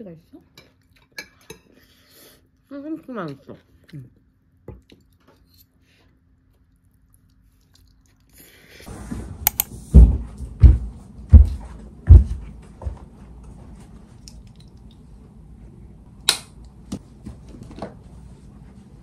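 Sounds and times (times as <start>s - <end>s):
heavy footsteps: 8.9s - 14.2s.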